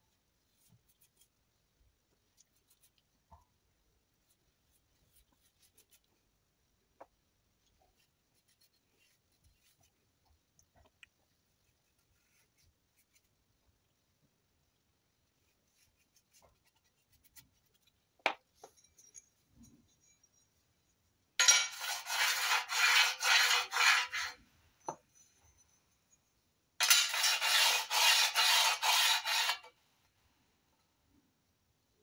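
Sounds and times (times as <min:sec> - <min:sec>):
steel plate scraping on steel: 0:21.4 - 0:24.4, 0:26.8 - 0:29.7.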